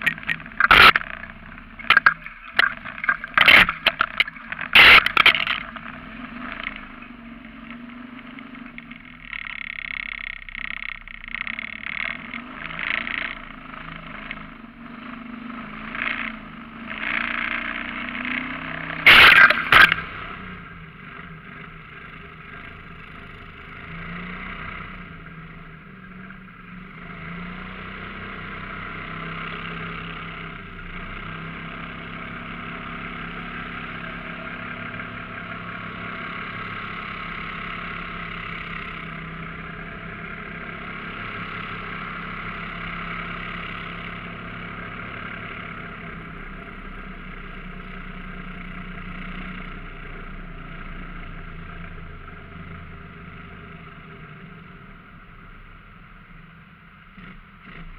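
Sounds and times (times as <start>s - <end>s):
boat motor running: 0.0s - 26.8s.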